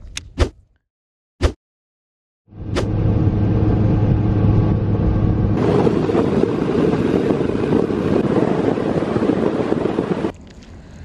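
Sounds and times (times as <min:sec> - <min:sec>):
outboard engine drone: 0:02.5 - 0:11.0
rush of wind and water: 0:05.6 - 0:11.0.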